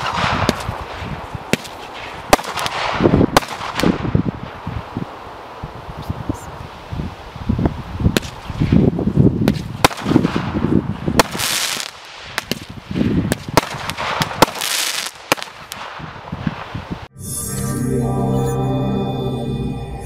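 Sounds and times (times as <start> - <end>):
firework shots thumping: 0.0 - 4.6, 8.1 - 8.8, 9.4 - 16.7
firework bursts cracking: 0.0 - 4.7, 9.4 - 16.9.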